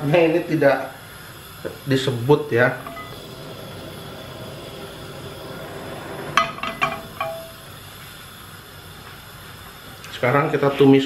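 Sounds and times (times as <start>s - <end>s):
faint hiss: 0.0s - 11.0s
frying pan clinking on metal: 6.4s - 7.6s.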